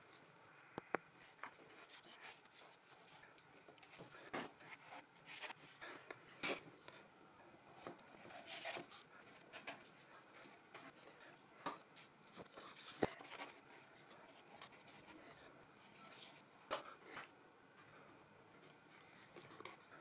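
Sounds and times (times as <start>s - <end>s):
paintbrush scratching on paper: 7.9s - 11.2s.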